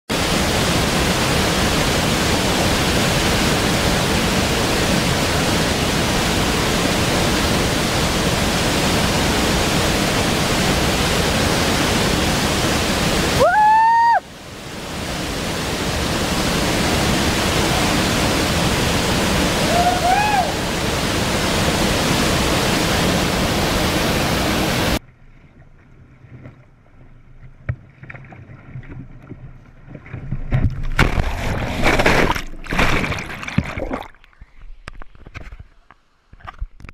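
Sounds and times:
waterfall roaring: 0.1s - 25.0s
person shouting: 13.4s - 14.2s, 19.6s - 20.6s.

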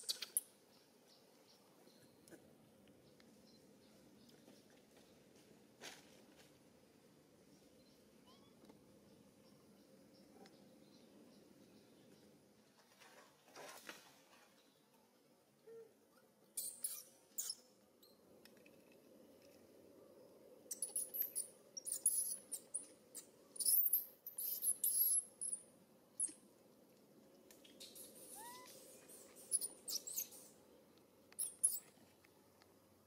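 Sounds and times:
high-pitched animal squeaks: 16.6s - 17.6s, 28.2s - 28.8s.

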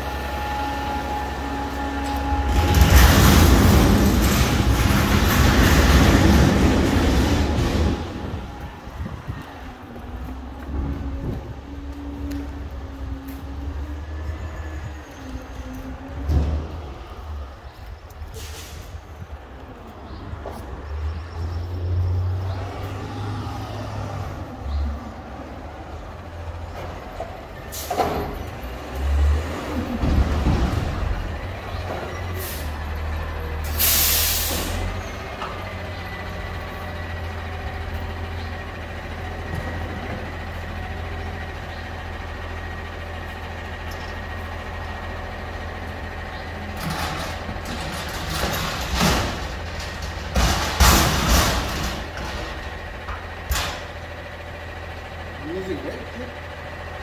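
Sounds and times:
truck engine rumbling: 0.0s - 57.0s
metal dumpster rattling on pavement: 1.3s - 11.8s, 26.1s - 57.0s
air brake hiss: 18.4s - 19.0s, 33.7s - 34.9s.

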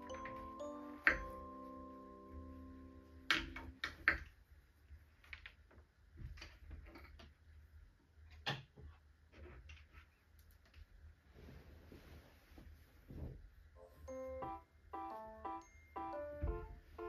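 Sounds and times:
held music chord: 0.0s - 3.3s, 13.8s - 17.0s.

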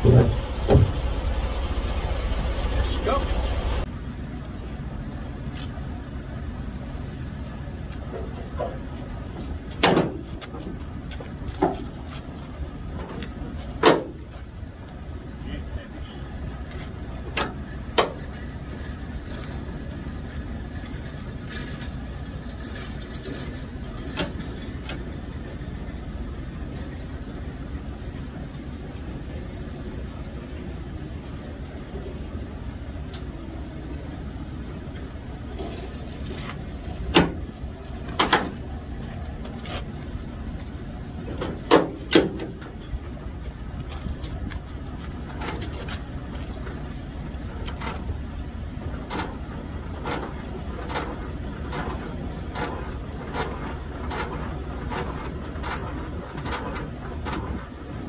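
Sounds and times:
diesel truck engine rumbling: 0.0s - 58.0s.

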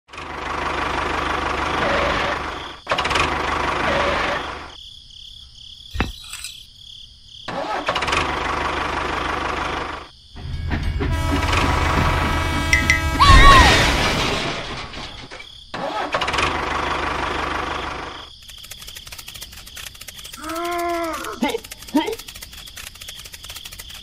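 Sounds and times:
tractor engine running: 0.1s - 4.7s, 7.5s - 13.4s, 16.2s - 24.0s
sharp clicks: 18.4s - 24.0s.

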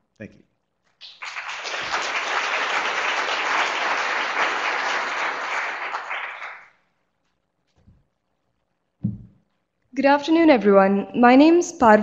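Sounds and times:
audience applauding: 1.0s - 7.0s.

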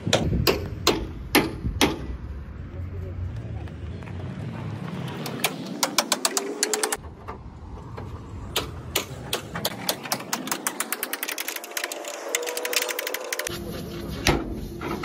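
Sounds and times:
ratchet wrench clicking: 10.6s - 13.5s.

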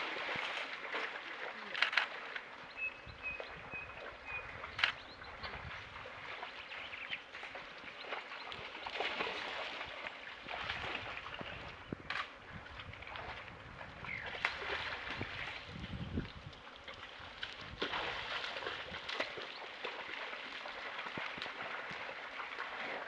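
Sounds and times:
water sloshing and splashing: 0.0s - 2.7s, 3.4s - 23.0s
faint high chirp: 2.7s - 5.6s.

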